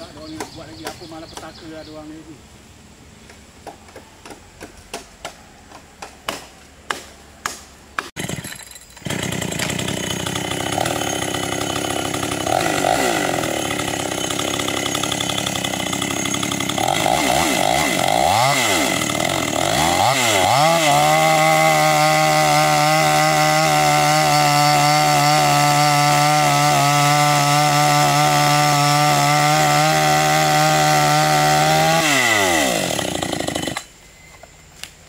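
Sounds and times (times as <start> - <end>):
chainsaw cutting log: 6.3 - 33.9.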